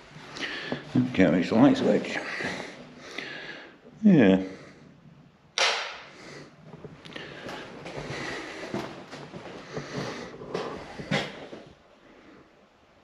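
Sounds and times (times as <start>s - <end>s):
sharp click: 5.6s - 6.0s
footsteps on hard floor: 6.7s - 11.8s.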